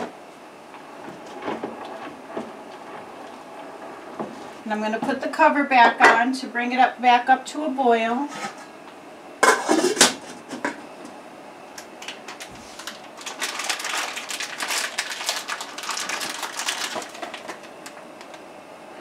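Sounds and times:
pot lid clanking: 9.4s - 10.2s
cardboard boxes crackling: 12.3s - 18.4s.

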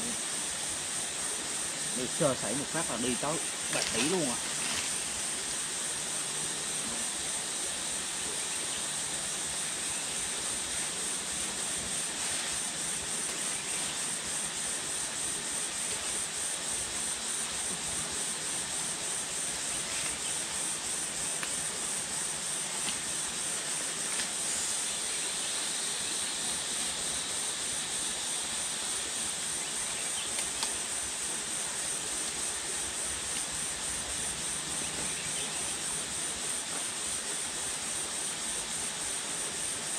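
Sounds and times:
insects droning: 0.0s - 39.9s.

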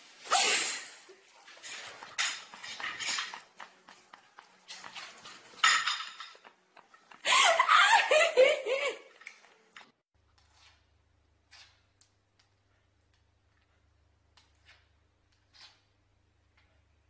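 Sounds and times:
cutlery clattering on a plate: 1.7s - 3.7s, 4.8s - 6.6s
person laughing loudly: 7.2s - 9.2s.

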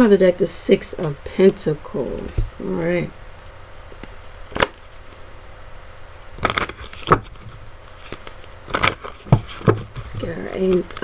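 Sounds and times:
faint steady hiss: 0.0s - 11.0s
playing cards rustling and tapping: 6.4s - 11.0s.

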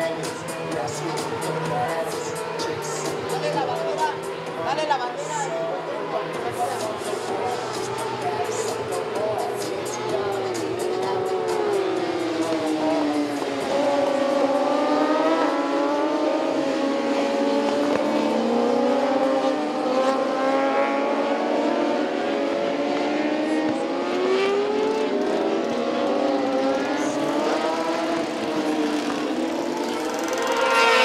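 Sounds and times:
motorcycle engines revving: 0.0s - 31.0s.

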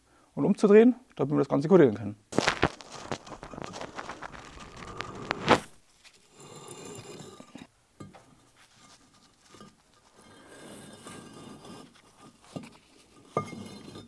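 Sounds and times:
brick scraping on brick: 2.4s - 7.7s, 8.5s - 14.0s.

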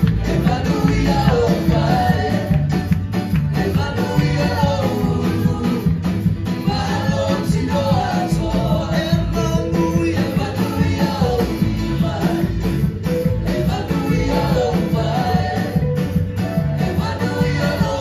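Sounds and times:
group singing gospel song: 0.0s - 18.0s
instrumental backing with beat: 0.0s - 18.0s.

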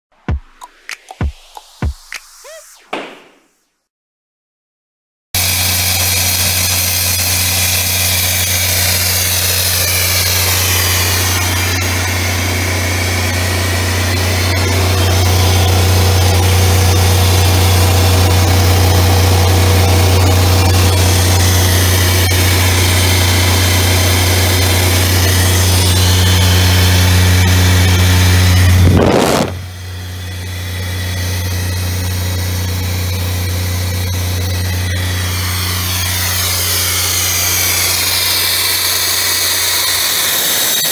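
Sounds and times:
loud rush of noise: 28.5s - 29.8s.

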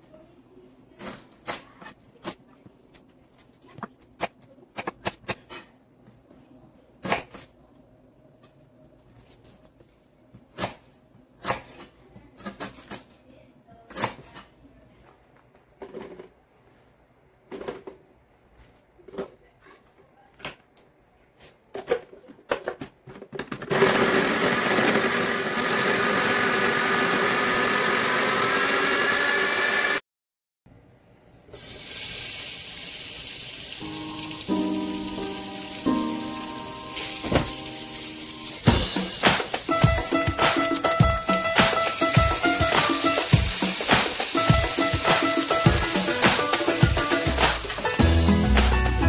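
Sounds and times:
food processor running: 23.6s - 30.0s, 38.7s - 47.8s
fat sizzling in a frying pan: 31.5s - 47.9s
background music: 33.8s - 49.0s.

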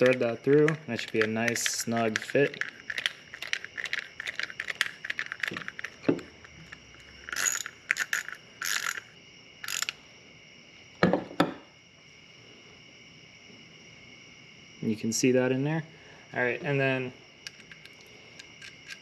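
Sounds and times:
metal tool clicking: 0.0s - 10.0s
crickets trilling: 0.0s - 19.0s.

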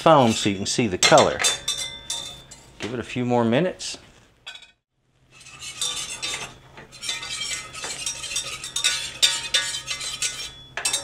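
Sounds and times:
whisk scraping a steel saucepan: 0.0s - 2.8s, 5.3s - 11.0s.

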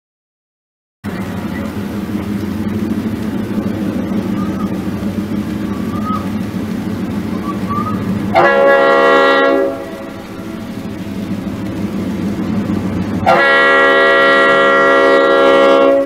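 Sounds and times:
diesel engine running: 1.0s - 16.0s
wheel and track noise: 1.0s - 16.0s
loud horn blast: 8.3s - 10.7s, 13.2s - 16.0s.

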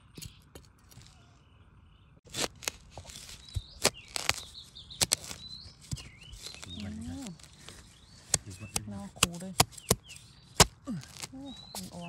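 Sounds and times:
knife blade chopping into soil: 2.3s - 12.0s.

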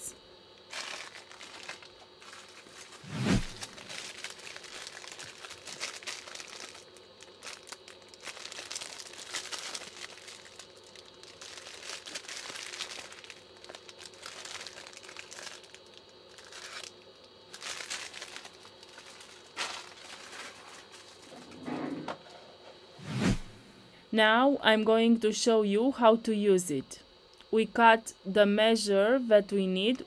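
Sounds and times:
plastic wrappers crinkling: 0.6s - 21.5s.

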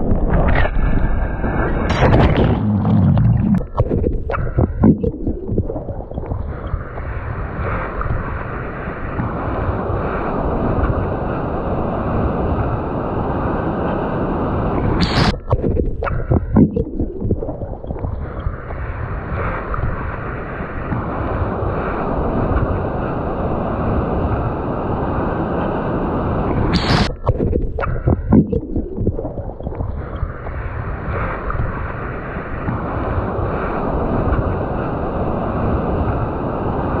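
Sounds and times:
water and wind rushing: 0.0s - 37.0s
water splash: 0.3s - 7.0s.

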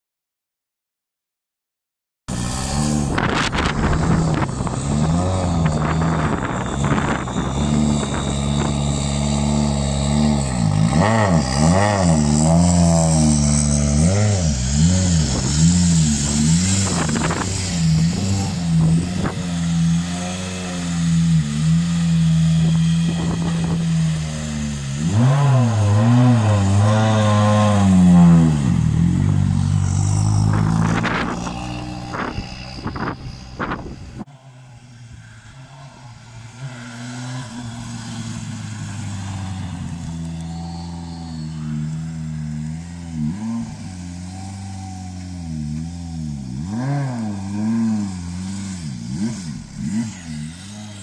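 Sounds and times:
rally car engine revving: 2.3s - 51.0s
wind on microphone: 2.8s - 9.0s, 14.8s - 19.8s, 22.8s - 24.1s, 28.6s - 34.3s.

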